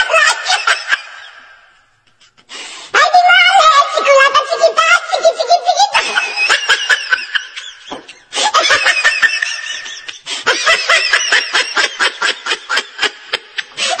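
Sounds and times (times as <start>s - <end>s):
high-pitched laughter: 0.0s - 1.6s, 3.6s - 14.0s.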